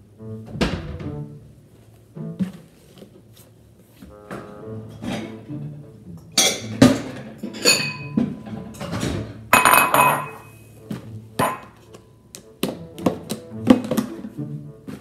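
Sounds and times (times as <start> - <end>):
ceramic bowl clinking on stone: 7.5 - 8.2, 9.6 - 10.5, 11.4 - 11.7.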